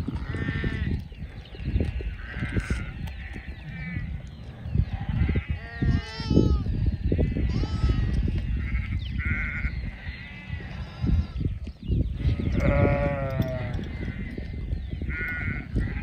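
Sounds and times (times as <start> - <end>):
sheep bleating: 7.4 - 8.1, 12.3 - 14.3.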